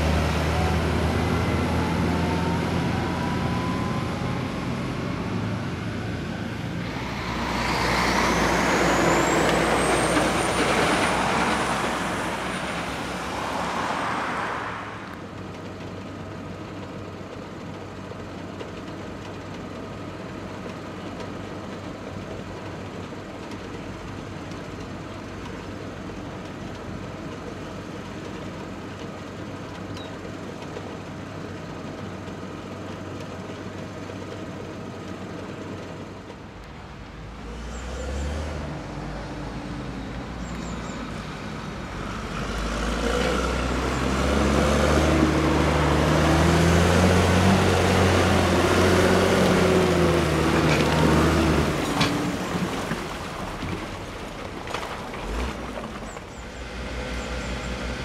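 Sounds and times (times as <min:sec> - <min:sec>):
tractor diesel engine running: 0:00.0 - 0:13.5, 0:15.0 - 0:37.4, 0:39.8 - 0:58.0
passing tractor engine: 0:00.0 - 0:17.1, 0:32.2 - 0:58.0.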